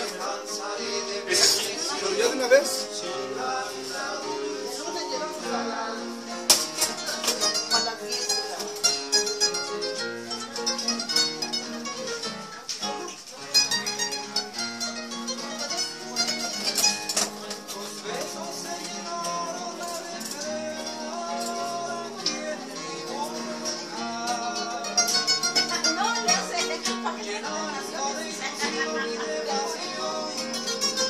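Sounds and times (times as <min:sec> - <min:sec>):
acoustic guitars playing: 0:00.0 - 0:31.0.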